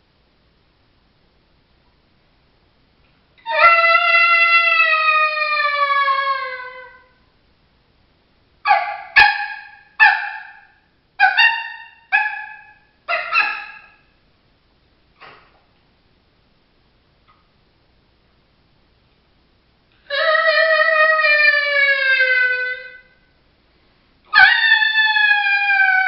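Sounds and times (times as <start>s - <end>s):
coyote call howl: 3.4s - 7.2s, 8.7s - 14.0s, 20.1s - 23.2s, 24.3s - 26.0s
coyote call barks: 8.6s - 14.0s.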